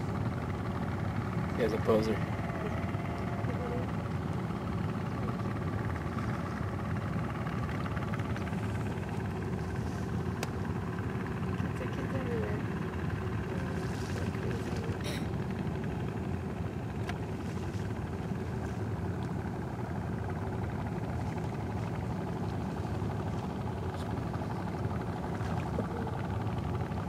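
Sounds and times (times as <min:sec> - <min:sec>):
boat engine rumbling: 0:00.0 - 0:27.0.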